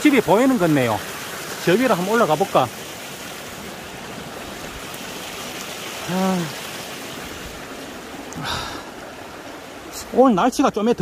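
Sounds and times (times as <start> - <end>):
stream rushing: 0.0 - 11.0
man humming: 6.1 - 6.6.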